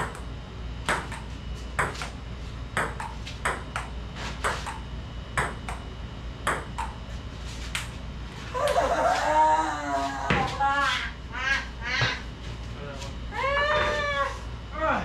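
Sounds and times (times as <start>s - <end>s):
ping pong ball bouncing: 0.9s - 2.1s, 2.8s - 4.8s, 5.4s - 5.8s, 6.4s - 7.0s.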